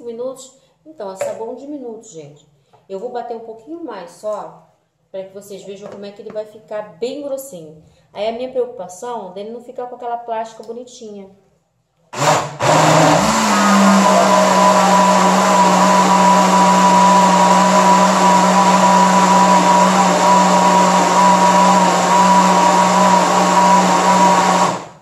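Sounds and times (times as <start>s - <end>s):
blender motor whirring: 12.2s - 25.0s.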